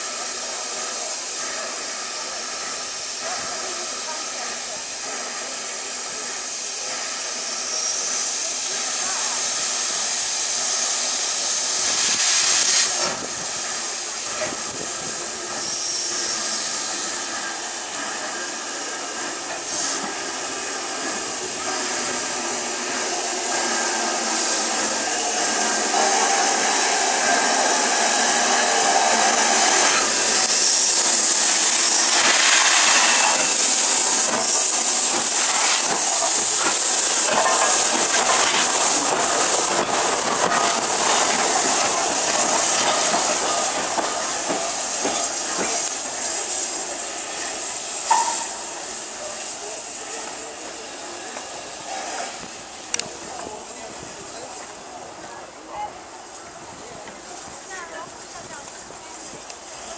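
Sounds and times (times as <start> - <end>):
steam locomotive hissing: 0.0 - 59.9
knocks of passing locomotive: 48.0 - 49.0.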